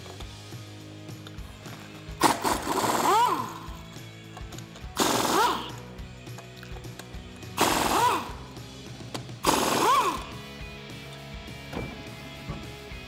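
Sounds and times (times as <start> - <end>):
pneumatic impact wrench whining: 2.2 - 4.0, 4.8 - 5.9, 7.6 - 8.6, 9.4 - 10.4.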